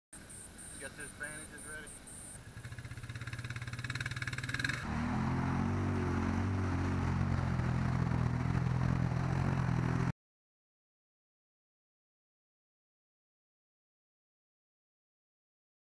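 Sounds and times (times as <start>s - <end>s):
atv engine running: 0.6s - 10.1s
utv engine revving: 2.1s - 10.1s.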